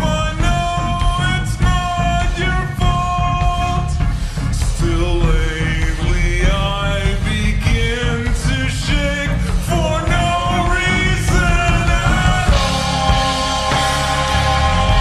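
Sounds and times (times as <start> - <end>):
heavy bass: 0.0 - 15.0
slowed-down song: 0.0 - 15.0.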